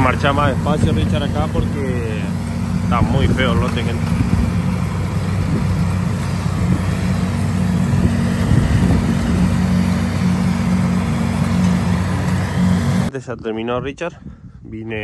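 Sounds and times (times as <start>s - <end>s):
vehicle engine running: 0.0s - 13.1s.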